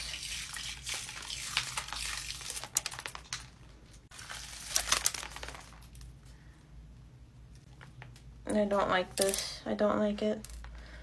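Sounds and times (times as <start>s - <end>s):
crinkly crackling of peeling: 1.4s - 6.1s.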